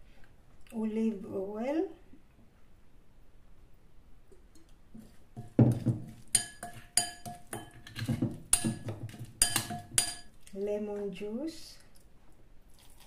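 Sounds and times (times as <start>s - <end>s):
spoon clinking against glass bowl: 6.3s - 10.3s.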